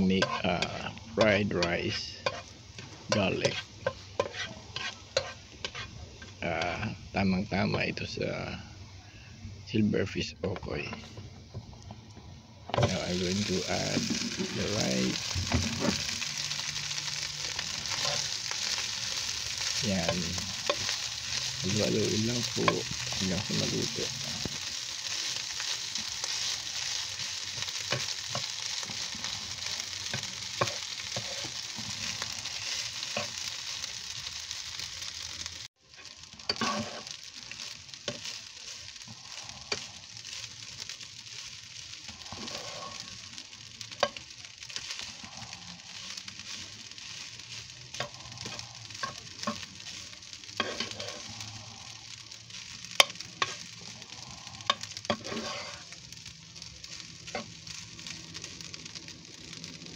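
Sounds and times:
metal spatula scraping: 0.0 - 6.4, 12.8 - 34.8, 35.9 - 41.1, 41.8 - 45.2, 45.8 - 56.0
rice sizzling in a frying pan: 0.0 - 59.9.

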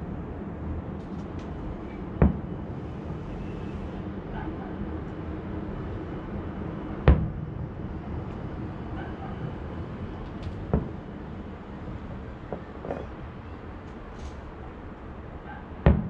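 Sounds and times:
low background hum: 0.0 - 16.0
distant fireworks booms: 2.2 - 2.8, 7.0 - 7.7, 10.6 - 11.2, 15.8 - 16.0.

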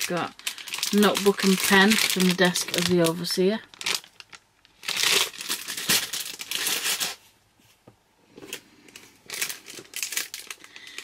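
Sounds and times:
plastic packaging crinkling: 0.0 - 7.3, 8.3 - 11.0.

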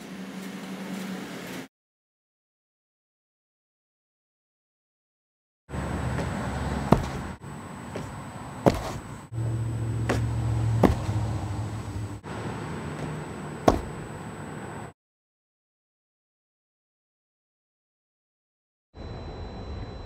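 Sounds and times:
low background hum: 5.8 - 14.9
person landing on ground thuds: 6.1 - 9.2, 10.0 - 11.4, 13.0 - 14.2.

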